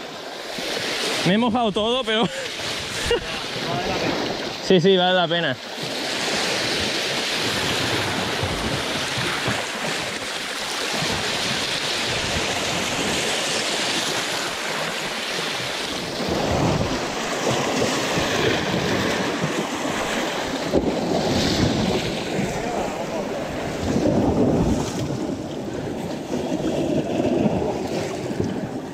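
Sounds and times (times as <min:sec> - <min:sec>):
sea water sloshing against rocks: 0:05.6 - 0:28.9
wind buffeting microphone: 0:05.8 - 0:28.9.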